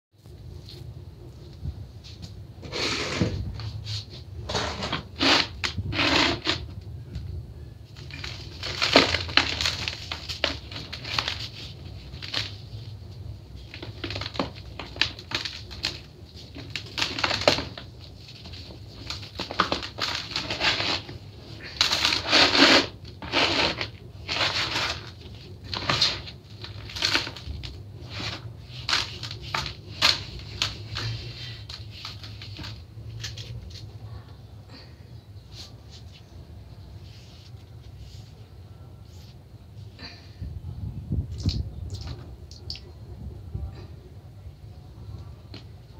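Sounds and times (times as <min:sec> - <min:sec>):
gritty crumbling and rubbing: 0:02.0 - 0:06.9, 0:07.9 - 0:34.0
powder blocks crunching: 0:07.9 - 0:33.9.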